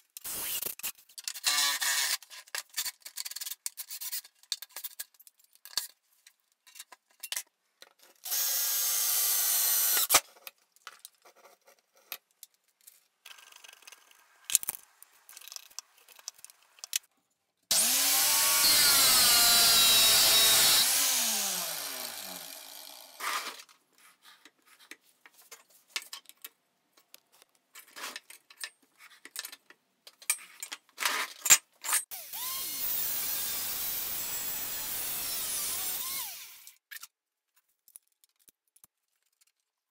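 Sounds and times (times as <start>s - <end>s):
angle grinder cutting steel: 8.3s - 10.1s, 17.7s - 23.4s, 32.1s - 36.8s
motor winding down: 17.7s - 23.2s, 32.2s - 36.8s
power tool burst: 17.7s - 23.2s.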